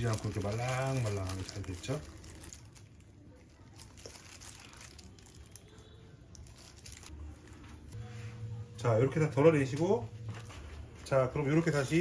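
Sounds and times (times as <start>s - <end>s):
plastic glove rustling: 0.0s - 8.0s.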